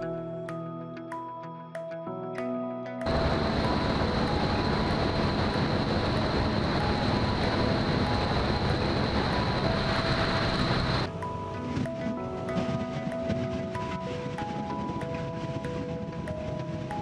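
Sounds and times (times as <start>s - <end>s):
high steady whine: 3.0s - 11.6s
propeller aircraft engine running: 3.0s - 17.0s
wind and water rushing: 3.0s - 17.0s.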